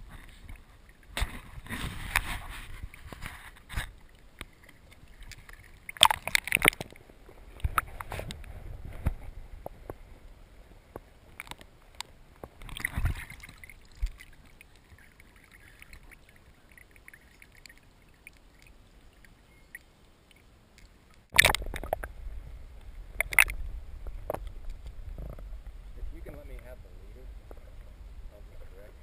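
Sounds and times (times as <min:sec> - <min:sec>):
water sloshing and splashing: 0:00.0 - 0:10.0, 0:11.3 - 0:22.2, 0:23.0 - 0:25.5
camera plunging into water: 0:00.4 - 0:04.0, 0:05.0 - 0:07.0, 0:07.6 - 0:09.3, 0:12.5 - 0:14.4, 0:21.3 - 0:22.1, 0:23.2 - 0:23.6.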